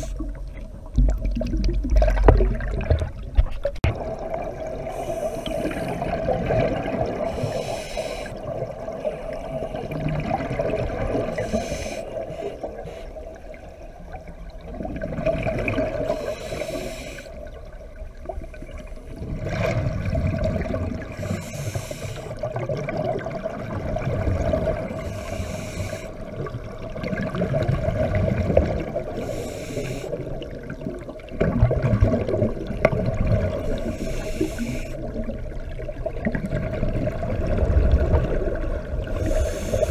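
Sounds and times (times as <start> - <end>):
bubbles rushing underwater: 0.0 - 7.5, 8.4 - 11.5, 13.4 - 16.2, 17.5 - 21.2, 22.4 - 25.1, 26.3 - 29.2, 30.2 - 33.9, 35.0 - 39.9
diver breathing through regulator: 4.8 - 6.2, 7.3 - 9.9, 11.4 - 13.3, 16.0 - 17.4, 21.1 - 22.5, 25.0 - 26.3, 29.2 - 30.3, 33.5 - 35.1, 39.1 - 39.9.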